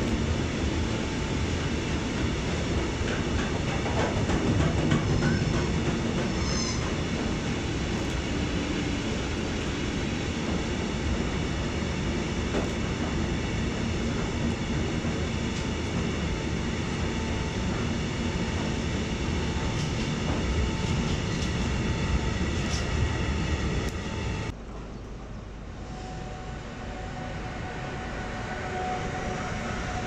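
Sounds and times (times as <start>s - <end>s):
freight train wheels rumbling on rail: 0.0s - 30.0s
faint high squeal: 6.3s - 6.9s, 25.8s - 30.0s.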